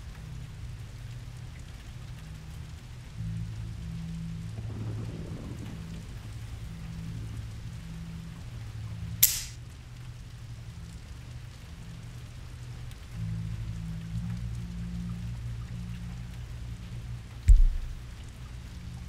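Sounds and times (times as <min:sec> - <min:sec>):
low droning hum: 0:00.0 - 0:19.0
revolver hammer click: 0:09.2 - 0:09.6.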